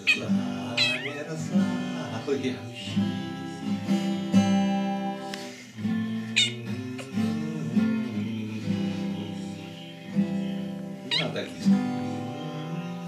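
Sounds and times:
cat crying: 0.0s - 1.3s, 6.3s - 6.7s, 11.1s - 11.5s
acoustic guitar chords: 0.0s - 13.0s.

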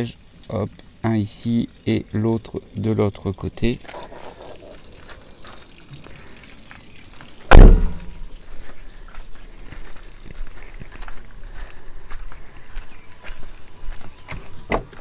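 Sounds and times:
van panel slamming shut: 7.5s - 8.1s.

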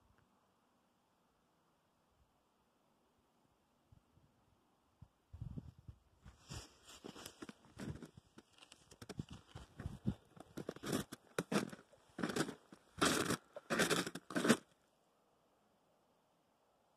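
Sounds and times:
footsteps crunching in snow: 6.3s - 14.7s.

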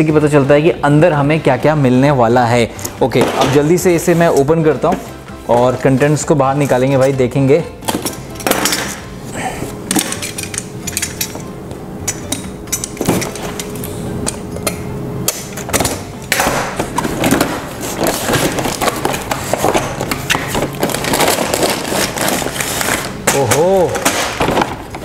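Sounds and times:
plastic bags crinkling: 16.0s - 25.0s
cardboard flaps scraping: 16.8s - 23.2s.

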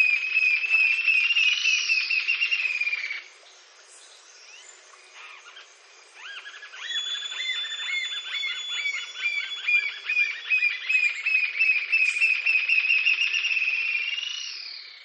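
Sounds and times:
bird singing high notes: 6.2s - 14.9s.

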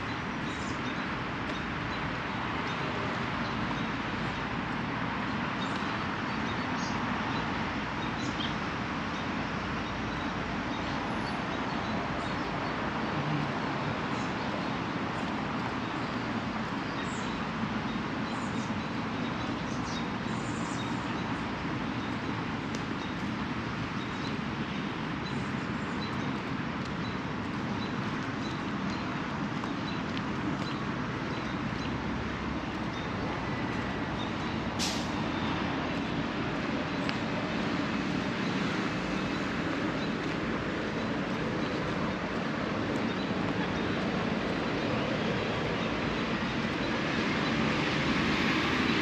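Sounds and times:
traffic noise: 0.0s - 49.0s
short sharp hiss: 34.8s - 35.2s.

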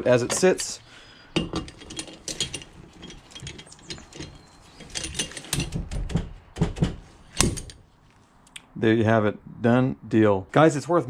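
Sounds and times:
slide hammer metal clanks: 1.3s - 5.9s.

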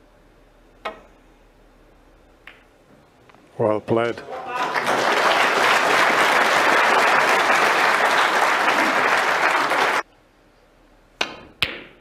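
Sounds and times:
snooker balls clicking: 2.4s - 2.7s
audience applauding: 4.2s - 10.0s.

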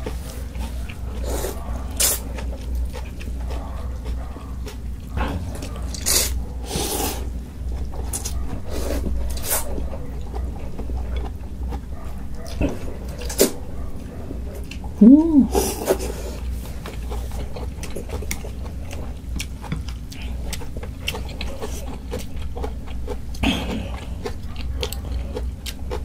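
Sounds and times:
chewing and mouth sounds: 0.0s - 26.0s
noodles being slurped: 0.2s - 2.5s, 5.9s - 7.4s
low steady hum: 7.2s - 26.0s.

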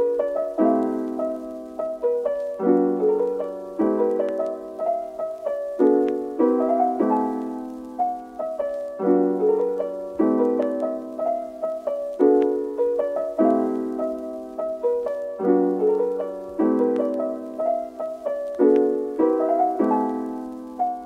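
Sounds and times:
gentle solo piano chords: 0.0s - 21.0s.

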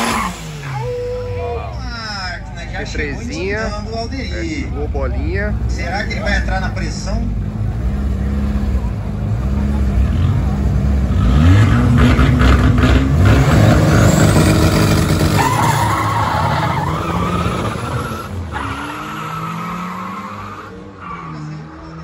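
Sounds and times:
car engines at high revs: 0.0s - 2.3s, 5.5s - 22.0s
tyre squeal: 15.2s - 21.6s.

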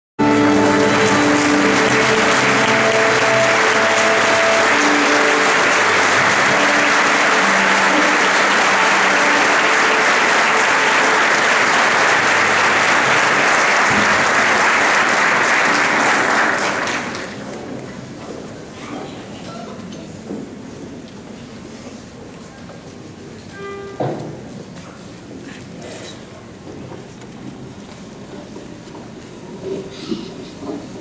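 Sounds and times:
held instrument notes: 0.2s - 14.4s
audience applauding: 0.2s - 17.8s.

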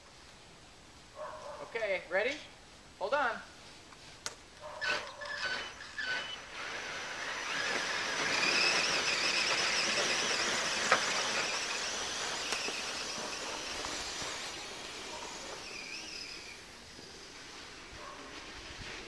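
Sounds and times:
rc truck motor whine: 4.8s - 17.8s.

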